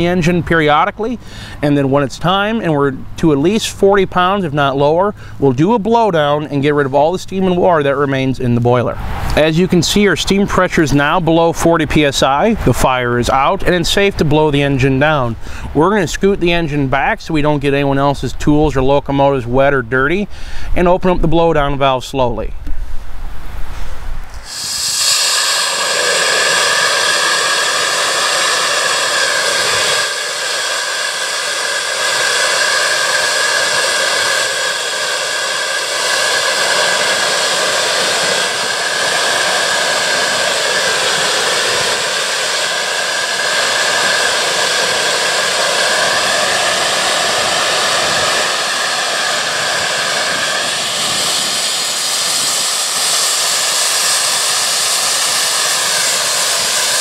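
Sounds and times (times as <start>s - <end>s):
steam blasting from valve: 0.0s - 8.0s, 24.4s - 57.0s.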